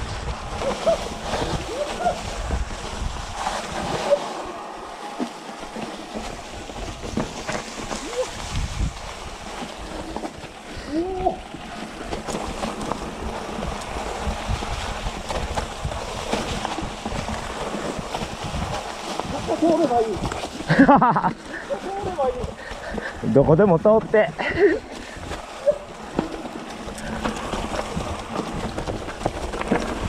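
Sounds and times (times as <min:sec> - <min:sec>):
bike rattling and knocking: 0:00.0 - 0:30.0
tyre and wind noise: 0:00.0 - 0:30.0.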